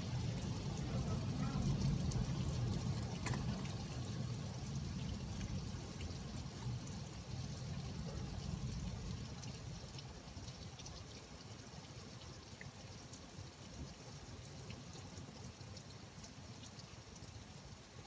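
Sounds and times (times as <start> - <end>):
rain falling: 0.0 - 18.0
water trickling and pouring: 0.0 - 18.0
low rumble: 0.2 - 5.9.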